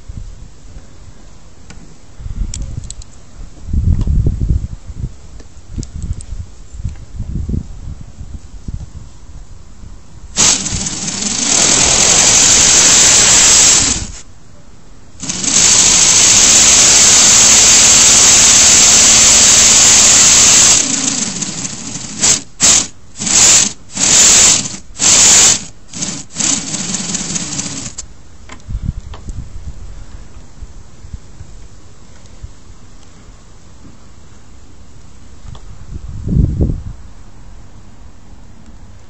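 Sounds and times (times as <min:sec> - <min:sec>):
air hissing: 0:10.4 - 0:14.2, 0:15.2 - 0:28.0.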